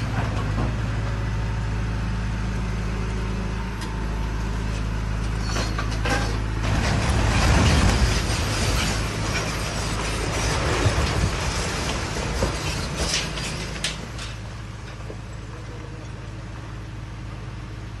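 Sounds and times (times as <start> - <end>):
excavator engine running: 0.0 - 18.0
falling debris clatter: 5.3 - 15.5
building collapsing with rumbling crash: 5.8 - 15.2.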